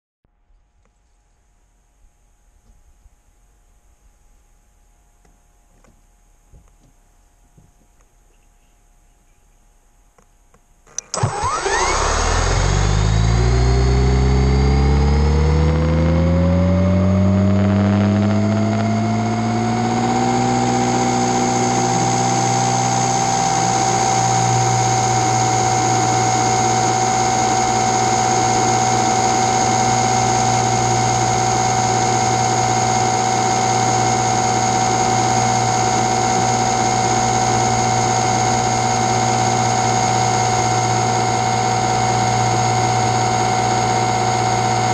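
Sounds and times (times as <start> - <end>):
drone motors whining: 10.9 - 44.9.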